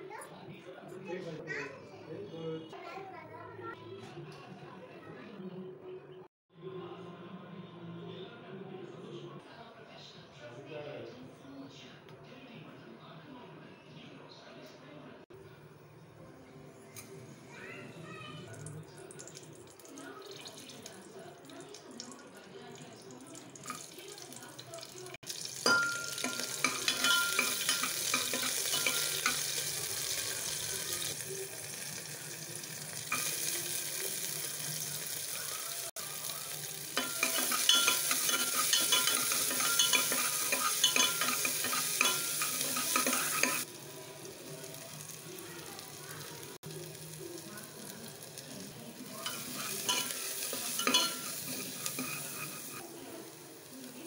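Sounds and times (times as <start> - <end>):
sizzling and crackling in hot oil: 22.8 - 54.0.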